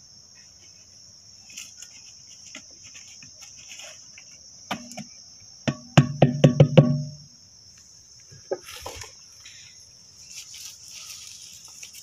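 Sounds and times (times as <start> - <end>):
crickets chirring: 0.0 - 12.0
bucket rapping against concrete pot: 4.7 - 7.3
faint rustling: 7.8 - 12.0.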